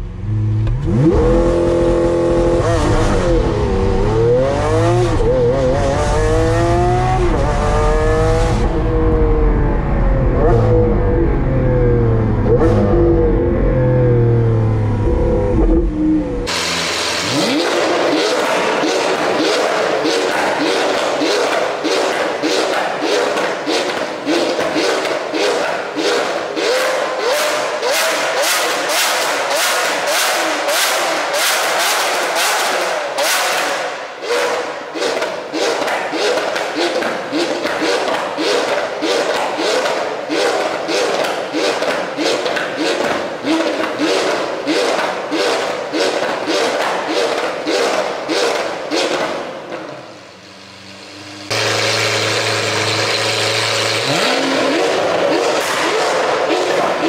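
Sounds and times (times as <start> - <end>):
sports car engine revving blips: 0.0 - 57.0.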